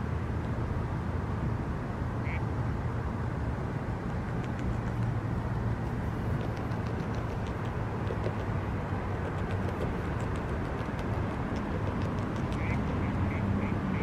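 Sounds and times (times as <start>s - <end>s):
beaver gnawing twig: 5.9s - 13.1s.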